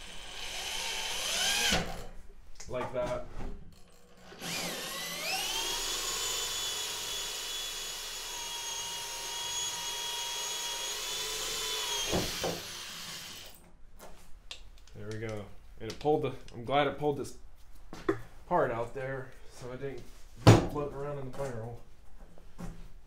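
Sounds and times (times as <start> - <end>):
electric drill motor whine: 0.0 - 2.0, 4.2 - 13.6.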